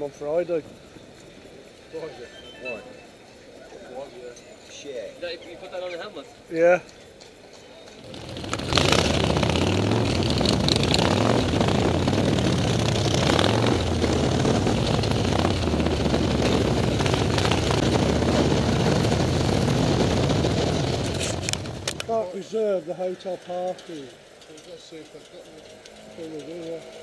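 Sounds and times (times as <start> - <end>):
motorcycle engine running: 8.0 - 22.3, 25.2 - 27.0
wind rush on microphone: 8.2 - 22.1.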